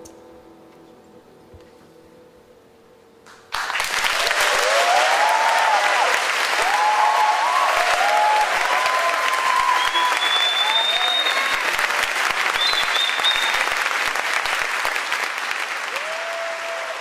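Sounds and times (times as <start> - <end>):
audience applause: 3.5 - 17.0
audience cheering: 3.6 - 17.0
high whistle: 8.9 - 11.8, 12.5 - 13.8.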